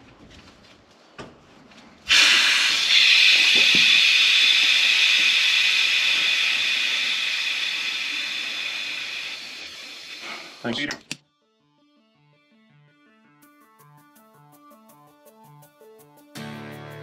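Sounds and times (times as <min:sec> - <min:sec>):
gas hissing from a pipe: 0:02.1 - 0:10.9.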